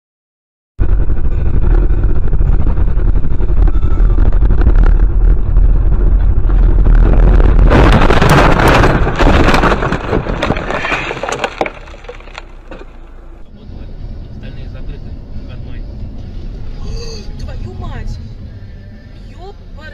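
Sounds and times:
vehicle engine rumble: 0.8 - 19.9
crunching collision impact: 0.9 - 13.5
debris clicks and rattles: 6.5 - 13.1.

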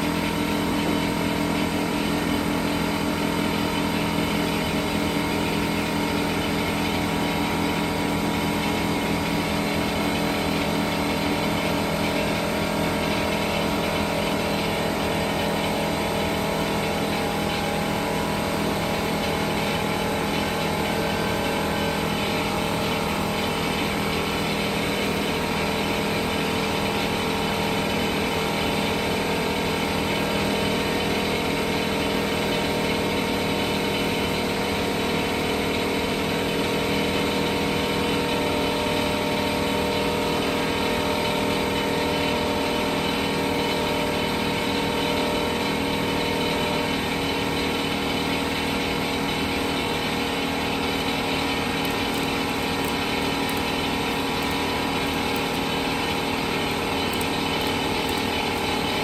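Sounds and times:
air compressor humming: 0.0 - 59.0.

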